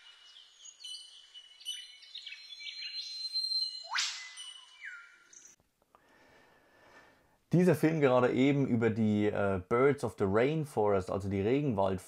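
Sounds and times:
birds chirping and whistling: 0:00.0 - 0:05.6
upward-sweeping bird whistle: 0:00.0 - 0:05.6.

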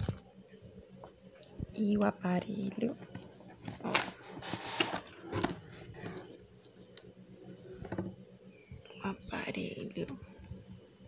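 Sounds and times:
plastic rustling and knocking: 0:03.0 - 0:06.4, 0:07.6 - 0:08.2.

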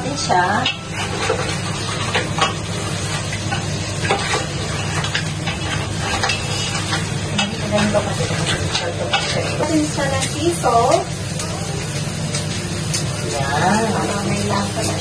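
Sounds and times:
crabs sizzling in a pan: 0:00.0 - 0:15.0
utensil clicking against pan: 0:03.3 - 0:11.6.

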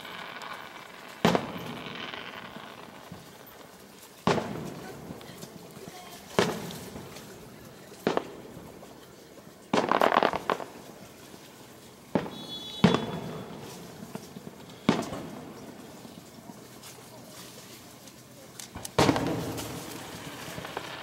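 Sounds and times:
firework shells bursting: 0:00.0 - 0:05.3, 0:09.7 - 0:11.4, 0:12.1 - 0:16.3, 0:18.6 - 0:21.0
rapid firework crackling: 0:00.0 - 0:21.0.

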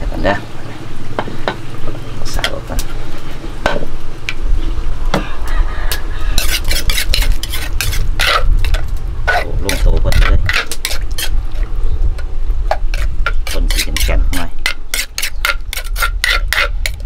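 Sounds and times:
metal spoon scraping in mortar: 0:05.9 - 0:11.7, 0:12.8 - 0:17.0.

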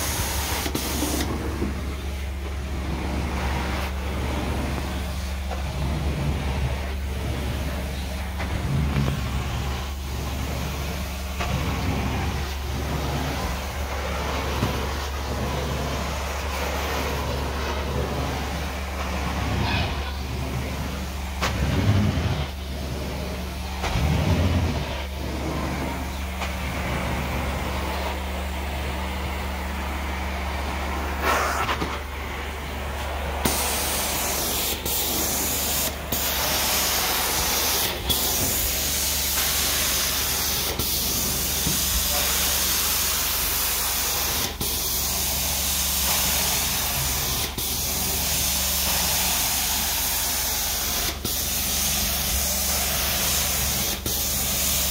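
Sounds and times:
water spraying and sucking hiss: 0:00.0 - 0:01.8, 0:33.4 - 0:54.9
carpet cleaner machine drone: 0:00.0 - 0:54.9.

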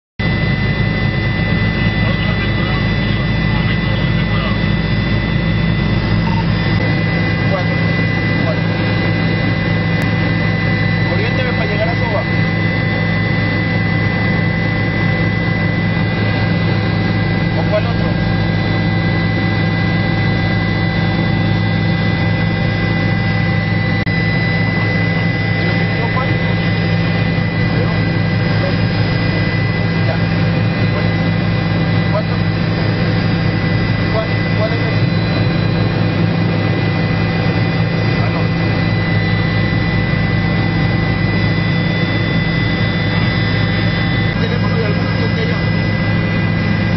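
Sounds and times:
helicopter engine and rotor drone: 0:00.2 - 0:46.9.

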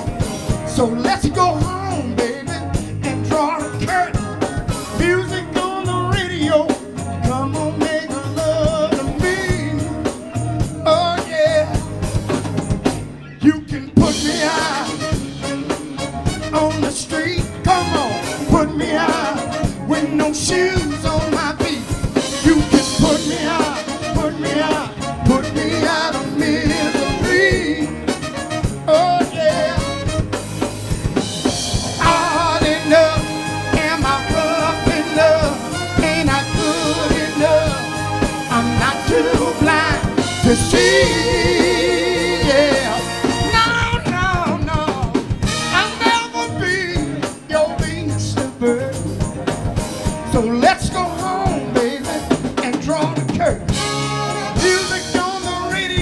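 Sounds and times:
bass guitar: 0:00.0 - 0:56.0
drum kit: 0:00.0 - 0:56.0
lead singer singing: 0:00.6 - 0:12.0, 0:13.2 - 0:30.2, 0:31.8 - 0:49.1, 0:50.3 - 0:53.6, 0:54.6 - 0:56.0
backing singers: 0:13.3 - 0:30.2, 0:31.8 - 0:47.4.

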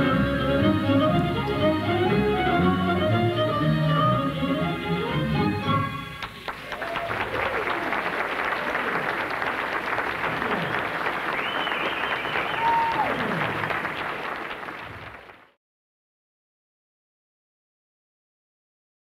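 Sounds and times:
audience applauding: 0:06.2 - 0:15.6
long falling shouts: 0:06.7 - 0:08.0, 0:11.5 - 0:13.6.

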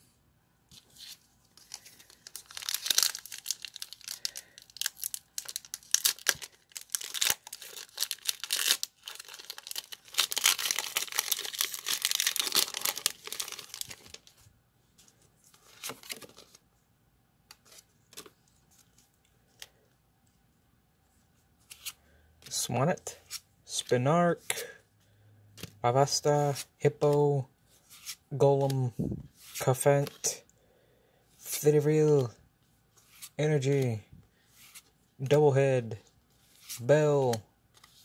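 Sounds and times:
foil wrapper crinkling and tearing: 0:01.6 - 0:14.3
cards rustling and tapping: 0:15.0 - 0:16.6.

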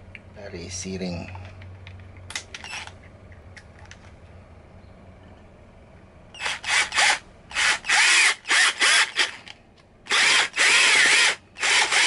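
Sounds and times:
cordless drill driving a screw: 0:06.4 - 0:09.4, 0:10.1 - 0:12.0.

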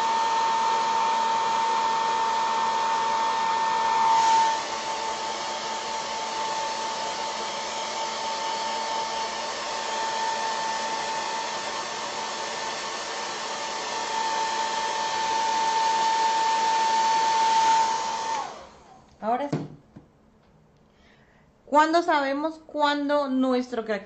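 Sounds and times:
hair dryer blowing: 0:00.0 - 0:19.7.

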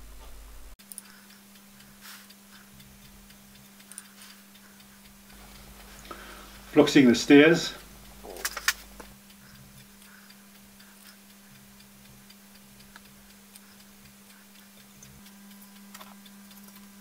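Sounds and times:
steady low hum: 0:00.0 - 0:17.0
sharp clicks: 0:05.3 - 0:09.2.

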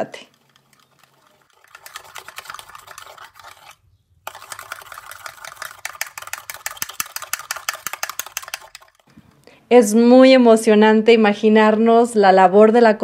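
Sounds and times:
metal spoon scraping clay cup: 0:00.0 - 0:09.1.

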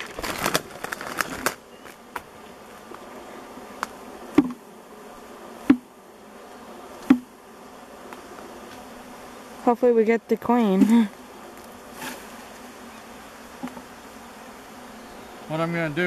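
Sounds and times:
branch rustling and crackling: 0:00.0 - 0:04.6
bee buzzing close past: 0:00.0 - 0:16.0
swarm of bees buzzing: 0:00.0 - 0:16.0.

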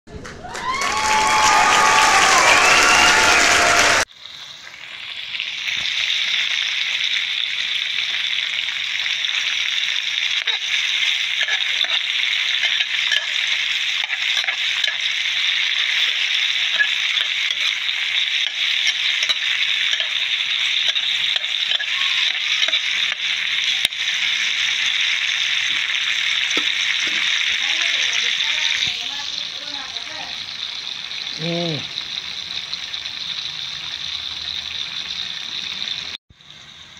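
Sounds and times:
tomatoes sizzling in hot oil: 0:00.7 - 0:36.9
spatula stirring and scraping: 0:10.4 - 0:24.0.

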